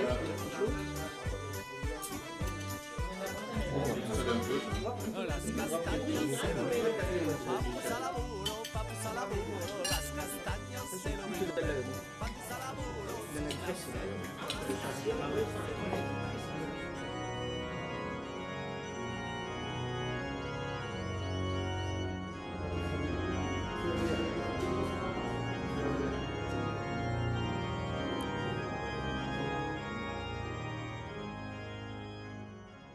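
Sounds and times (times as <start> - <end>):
organ playing slow chords: 0.0 - 32.9.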